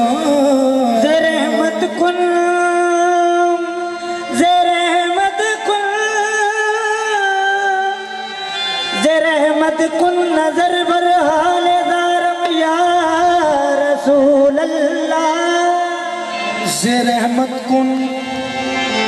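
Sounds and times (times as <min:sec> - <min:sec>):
man singing long wavering notes: 0:00.0 - 0:18.8
harmonium: 0:00.0 - 0:19.0.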